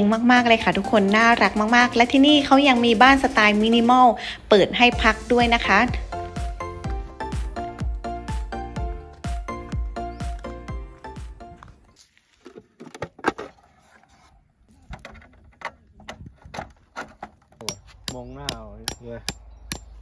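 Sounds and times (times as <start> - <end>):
hammer striking tent peg: 17.6 - 20.0.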